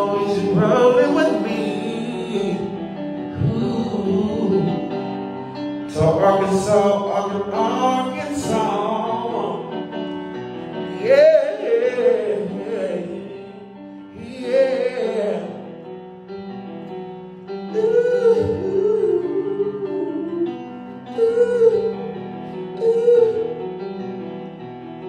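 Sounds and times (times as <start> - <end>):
man singing gospel-style song: 0.0 - 4.9, 5.9 - 10.0, 10.9 - 15.6.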